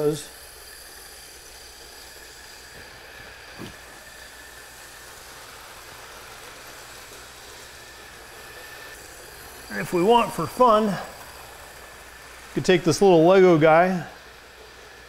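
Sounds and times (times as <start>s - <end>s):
electric motor whir: 0.0s - 15.0s
wheels rolling on rails: 0.0s - 15.0s.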